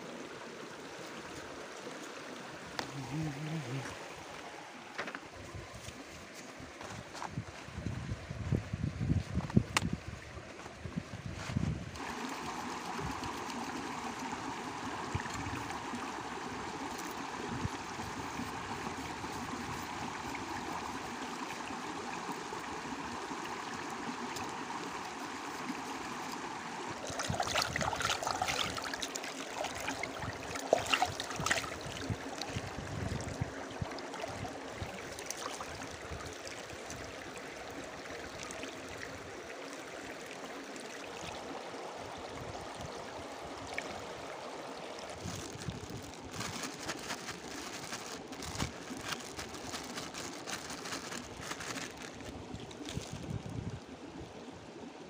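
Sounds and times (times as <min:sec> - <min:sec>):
stream flowing over stones: 0:00.0 - 0:55.0
splashing in water: 0:26.9 - 0:37.0, 0:45.1 - 0:53.4.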